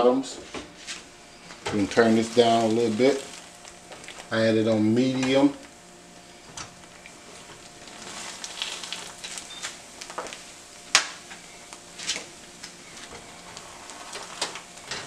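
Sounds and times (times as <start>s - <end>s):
buns sizzling in a pan: 0.8s - 15.0s.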